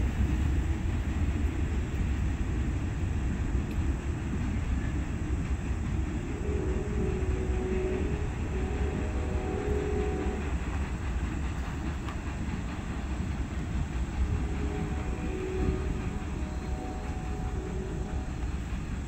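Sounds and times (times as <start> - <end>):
freight train wheels rumbling on track: 0.0 - 19.0
faint tones: 6.3 - 10.8, 14.1 - 18.8.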